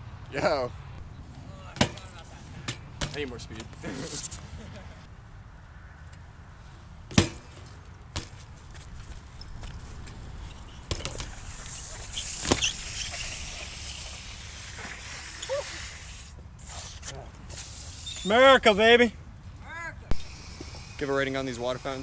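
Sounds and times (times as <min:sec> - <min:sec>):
sharp knocks of bike landing: 0:01.8 - 0:03.3, 0:07.1 - 0:08.5, 0:10.8 - 0:11.5, 0:12.3 - 0:12.8
bike tyres rumbling on concrete: 0:07.1 - 0:16.1, 0:20.1 - 0:22.0.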